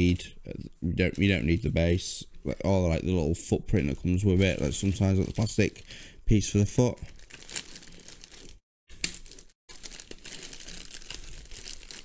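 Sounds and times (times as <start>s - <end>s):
plastic bag crinkling: 4.4s - 6.1s, 6.8s - 12.0s.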